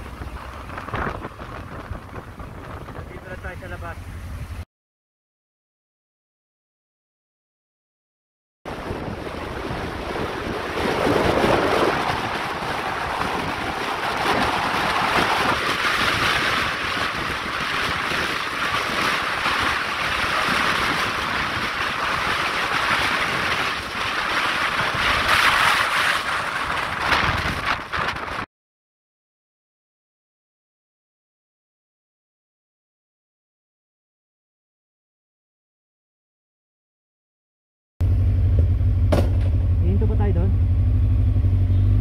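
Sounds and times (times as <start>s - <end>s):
wind rushing over microphone: 0.0s - 4.6s, 8.7s - 28.5s.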